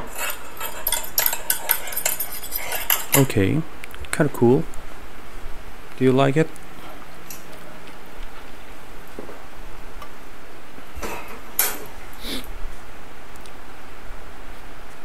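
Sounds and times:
clatter of dishes and utensils: 0:00.0 - 0:03.4, 0:11.0 - 0:11.9
steady background hiss: 0:00.0 - 0:15.0.

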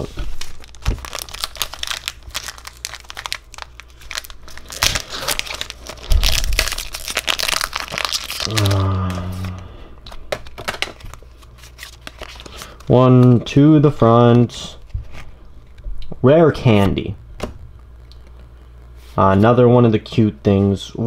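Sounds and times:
wrapper crinkling and tearing: 0:00.0 - 0:13.4.

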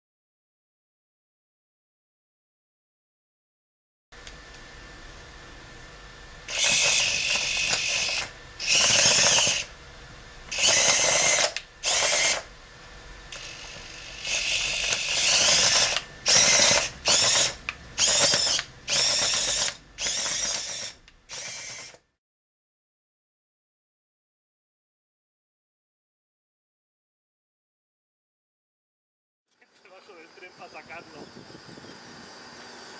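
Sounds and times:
robot drive motors whirring: 0:06.4 - 0:09.7, 0:10.5 - 0:12.5, 0:13.3 - 0:22.1.

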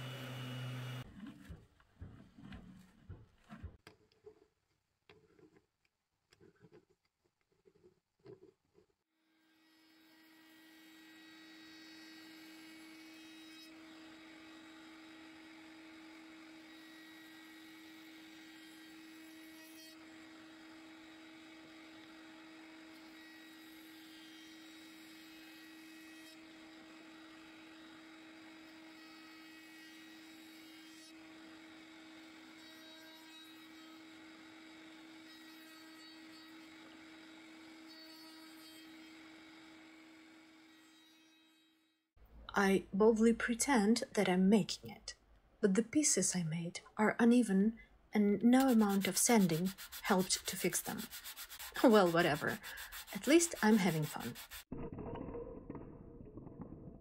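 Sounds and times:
wood router running: 0:00.0 - 0:01.2, 0:50.8 - 0:54.6.

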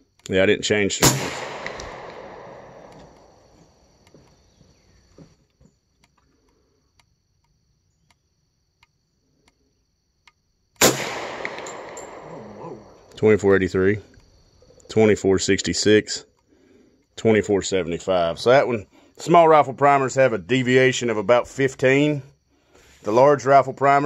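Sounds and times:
rifle shot with echo: 0:00.9 - 0:03.6, 0:10.8 - 0:13.0
faint ticks: 0:05.5 - 0:10.4.

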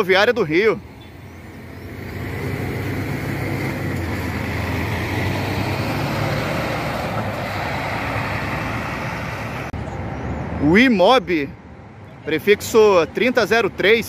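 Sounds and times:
bus diesel engine humming: 0:00.0 - 0:10.0
tyre and road noise: 0:00.0 - 0:14.0.

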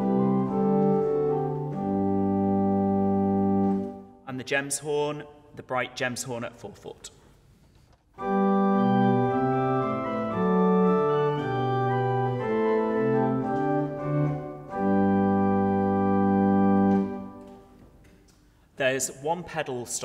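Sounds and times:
pipe organ chords: 0:00.0 - 0:04.2, 0:08.2 - 0:18.2.

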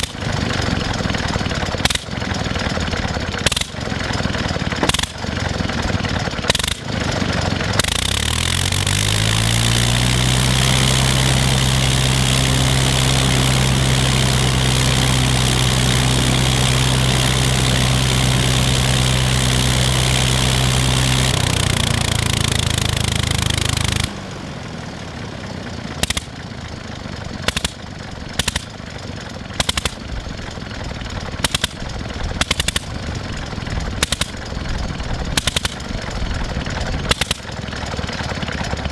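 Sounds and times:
engine firing sharp pops: 0:00.0 - 0:00.3, 0:01.6 - 0:02.4, 0:03.3 - 0:04.0, 0:04.7 - 0:05.4, 0:06.4 - 0:07.0, 0:26.0 - 0:26.5, 0:27.3 - 0:28.8, 0:29.4 - 0:30.2, 0:31.2 - 0:33.0, 0:33.9 - 0:34.6, 0:35.2 - 0:37.7
rotary aero engine running: 0:00.0 - 0:38.9.

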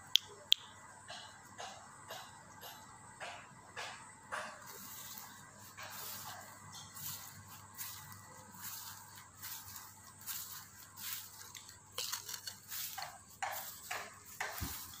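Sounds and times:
footsteps through grass: 0:04.6 - 0:15.0.

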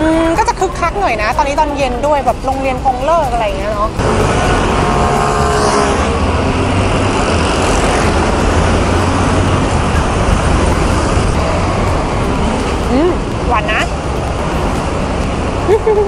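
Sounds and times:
city road traffic: 0:00.0 - 0:16.0
low engine rumble: 0:00.0 - 0:16.0.

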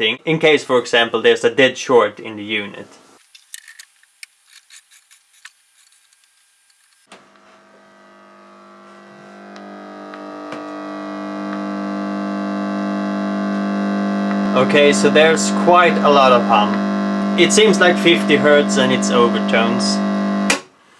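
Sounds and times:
amplifier speaker mains hum: 0:07.1 - 0:20.9.

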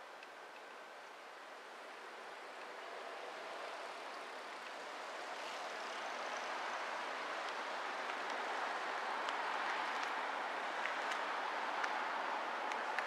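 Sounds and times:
faint ticks: 0:00.1 - 0:01.2, 0:04.6 - 0:05.5.

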